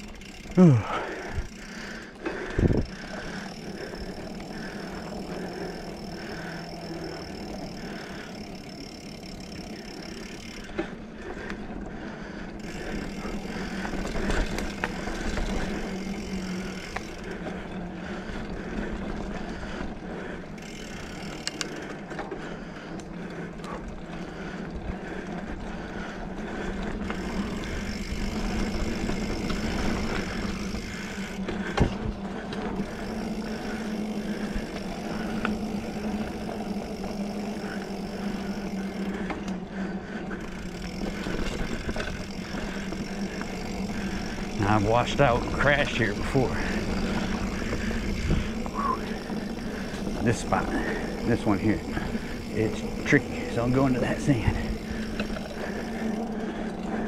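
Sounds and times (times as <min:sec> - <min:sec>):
mountain bike on dirt trail: 0:00.0 - 0:57.0
sharp clicks and rattles: 0:20.9 - 0:23.9, 0:40.6 - 0:57.0.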